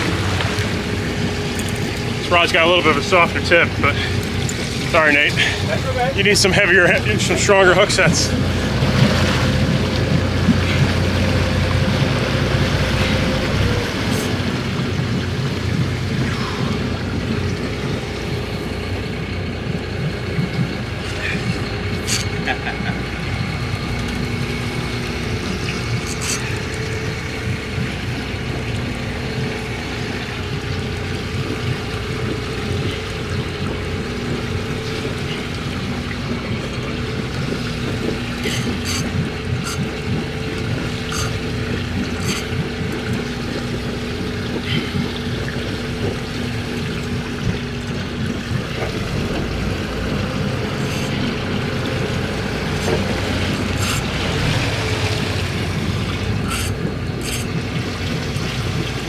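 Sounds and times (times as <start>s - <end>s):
boat engine running: 0.0s - 59.0s
water rushing along hull: 0.0s - 59.0s.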